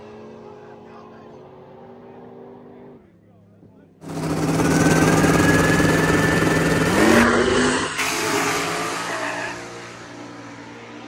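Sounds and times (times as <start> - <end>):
drag car engine at full throttle: 4.0 - 10.8
high whine: 4.1 - 9.3.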